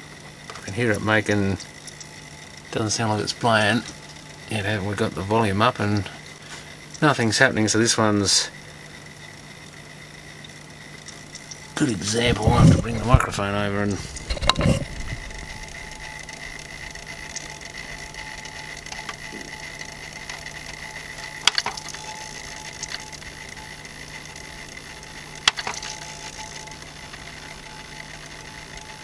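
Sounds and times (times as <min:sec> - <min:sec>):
cd player mechanism whine: 0:00.0 - 0:29.0
sharp mechanical clicks: 0:13.0 - 0:29.0.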